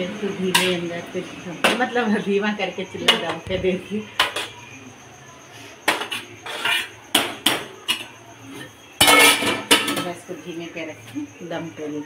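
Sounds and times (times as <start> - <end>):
cookware clattering: 9.0 - 10.2.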